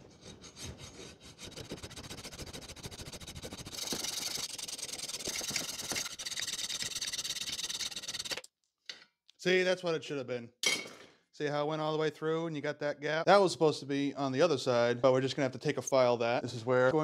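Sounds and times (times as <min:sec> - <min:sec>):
hacksaw cutting metal: 0:00.0 - 0:08.4.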